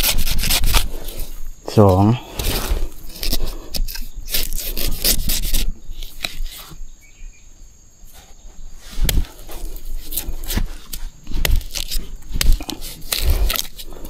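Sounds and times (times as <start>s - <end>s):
bamboo leaves rustling and crackling: 0.0s - 6.8s, 8.2s - 14.0s.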